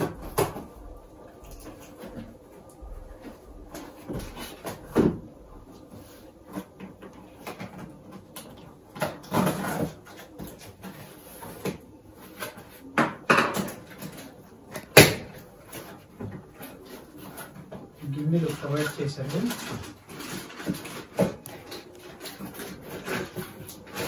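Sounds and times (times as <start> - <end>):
cardboard flaps scraping and rustling: 13.7 - 24.0.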